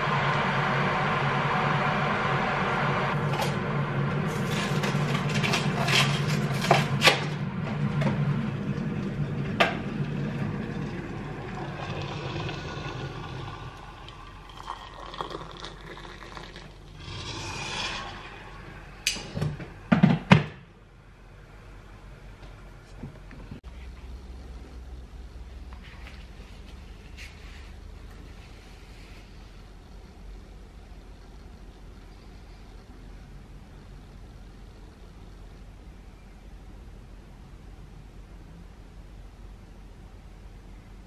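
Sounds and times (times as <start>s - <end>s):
humming appliance: 0.0s - 25.8s.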